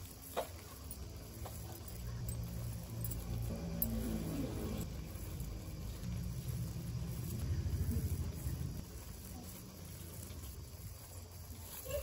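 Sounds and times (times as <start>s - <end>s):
low background rumble: 1.9s - 11.4s.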